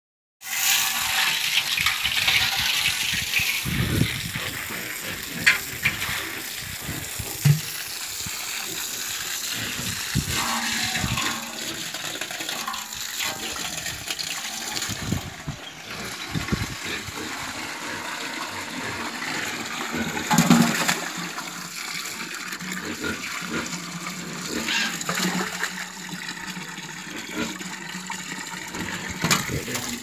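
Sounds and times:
hose water spraying and splashing: 0.4 - 30.0.

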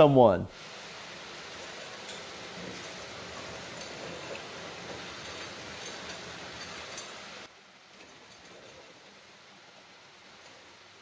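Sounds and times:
toolbox casters rolling on concrete: 1.1 - 9.6.

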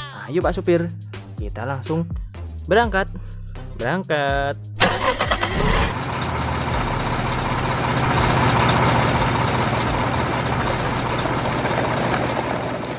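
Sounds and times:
heavy truck engine droning: 4.8 - 12.9.

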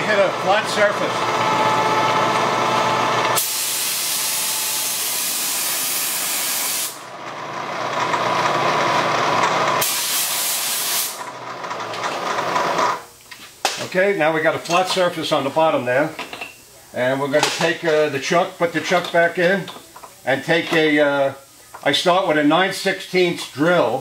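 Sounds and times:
milling machine whine: 0.0 - 10.0
compressed air blow gun hissing: 3.4 - 7.0, 9.8 - 11.2.

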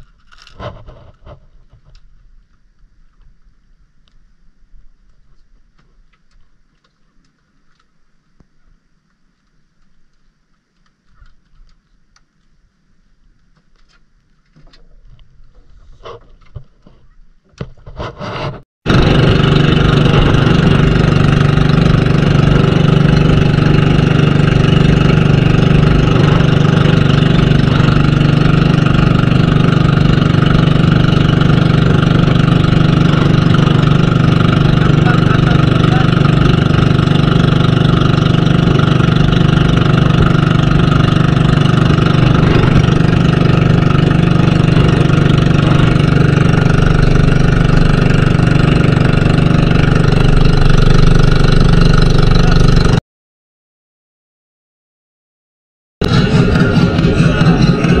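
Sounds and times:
boat engine running: 18.8 - 53.0, 56.0 - 58.0.

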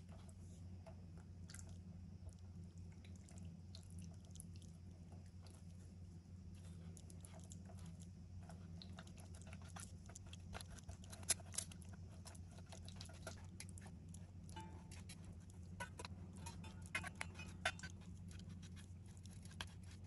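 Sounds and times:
low steady hum: 0.0 - 20.0
spatula scraping tofu through sieve: 14.6 - 20.0.

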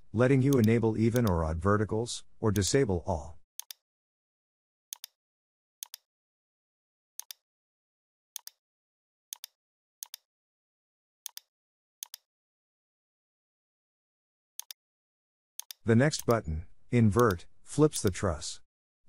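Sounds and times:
computer mouse clicks: 3.6 - 3.8, 4.9 - 5.2, 5.8 - 6.1, 7.2 - 7.4, 8.4 - 8.6, 9.3 - 10.3, 11.3 - 12.3, 15.6 - 16.4, 17.2 - 17.4.

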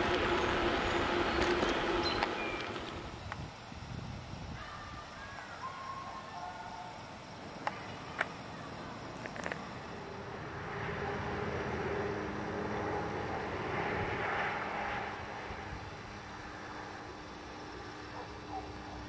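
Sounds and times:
motor vehicle passing by: 0.0 - 3.1, 9.3 - 17.1
small clicks: 9.2 - 9.7.

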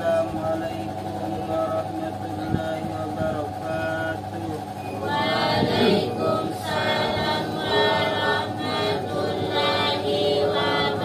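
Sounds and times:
person reciting: 0.0 - 11.0
group chanting prayers in unison: 4.9 - 11.0.

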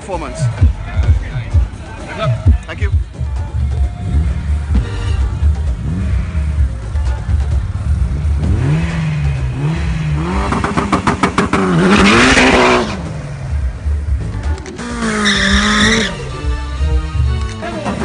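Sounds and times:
car engine revving: 0.5 - 18.0
engine popping and crackling: 2.4 - 16.1
tyres spinning in burnout: 7.8 - 13.1, 14.7 - 16.2.

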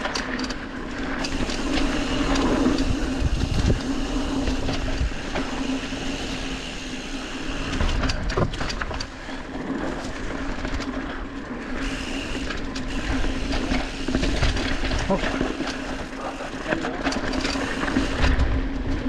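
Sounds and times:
bike buzz: 0.0 - 19.0
bike clattering over bumps: 0.0 - 19.0
bike tyres on dirt trail: 0.0 - 19.0
wind on microphone: 1.4 - 5.4.

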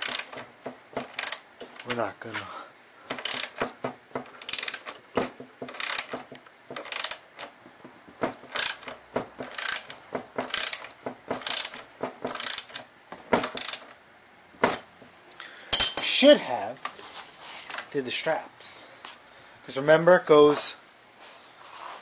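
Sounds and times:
hand ratchet clicking: 0.0 - 2.0, 3.1 - 7.6, 8.2 - 14.0.

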